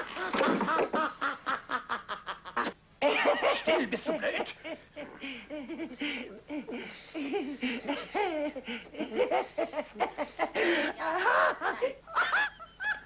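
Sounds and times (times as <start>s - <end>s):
man laughing uncontrollably: 11.2s - 13.0s.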